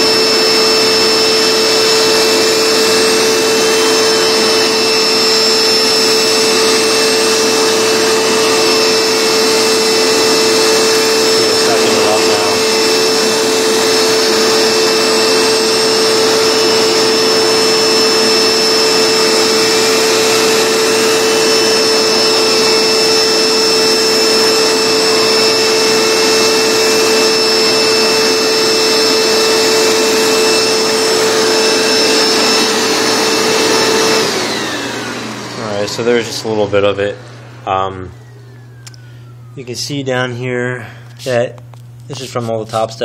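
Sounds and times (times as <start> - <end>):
carpet cleaner motor whine: 0.0 - 43.0.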